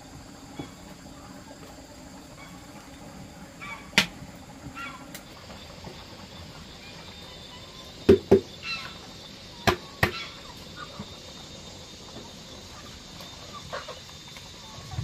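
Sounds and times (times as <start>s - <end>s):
chickens clucking: 3.5s - 15.0s.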